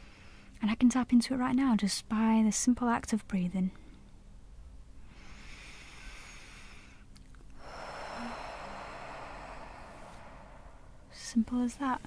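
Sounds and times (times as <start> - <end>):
woman breathing slowly: 0.0 - 0.6, 5.0 - 12.0.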